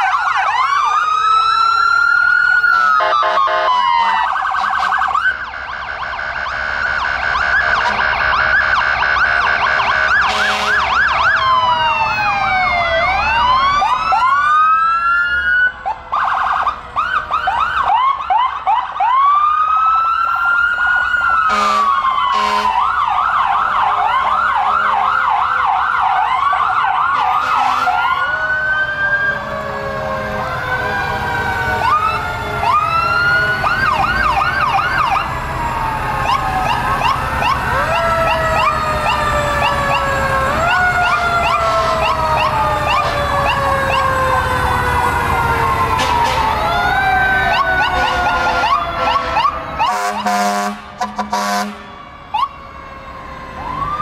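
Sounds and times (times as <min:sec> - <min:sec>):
emergency sirens wailing: 0:00.0 - 0:54.0
sirens yelping: 0:00.0 - 0:54.0
short horn blasts: 0:10.3 - 0:10.8, 0:21.5 - 0:22.7, 0:48.0 - 0:51.9.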